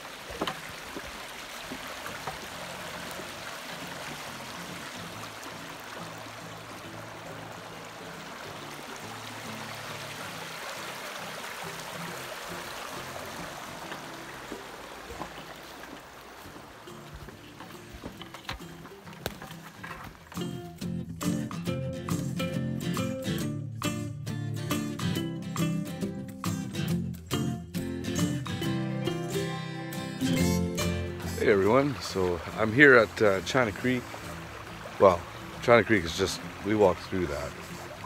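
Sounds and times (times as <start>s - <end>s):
creek water rippling over stones: 0.0s - 20.6s, 31.0s - 38.0s.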